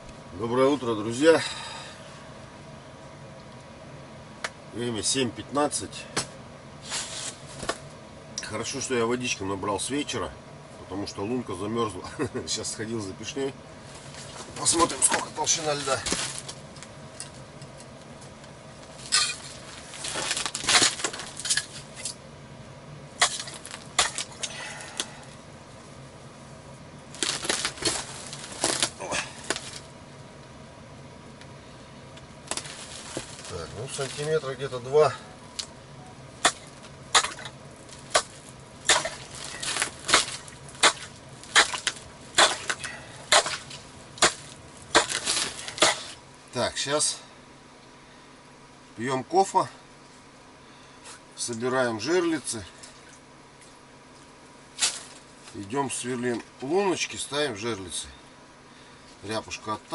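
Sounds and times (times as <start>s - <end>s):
ice chisel chipping ice: 23.2s - 24.6s, 36.4s - 37.5s, 38.1s - 38.3s, 38.9s - 46.2s.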